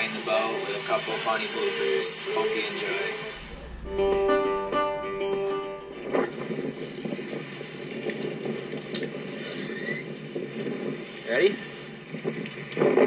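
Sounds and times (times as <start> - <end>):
wind: 0.0 - 13.0
intro music chord: 3.2 - 7.0
choppy water against boat: 5.2 - 13.0.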